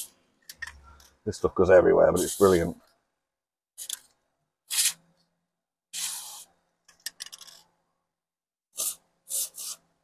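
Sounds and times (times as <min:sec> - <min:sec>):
aerosol can spraying: 0:02.2 - 0:02.7, 0:06.0 - 0:06.5, 0:08.8 - 0:09.8.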